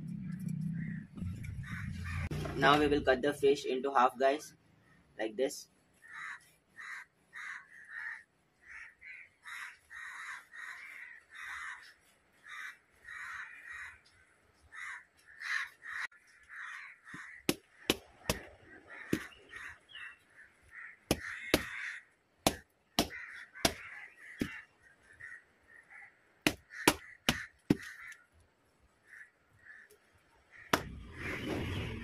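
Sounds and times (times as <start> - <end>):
crows cawing: 0.8 - 2.5, 6.0 - 28.4, 29.0 - 31.0
knife chopping through fish: 17.5 - 18.5, 21.1 - 21.8, 22.5 - 23.8, 26.5 - 27.9.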